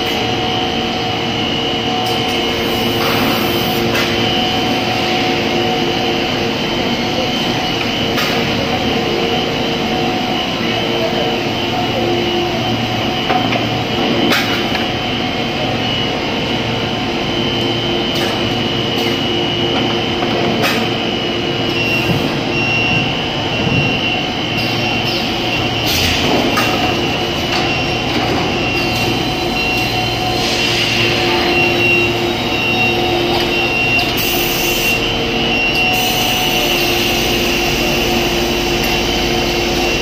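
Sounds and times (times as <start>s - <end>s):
industrial machine hum and whine: 0.0s - 40.0s.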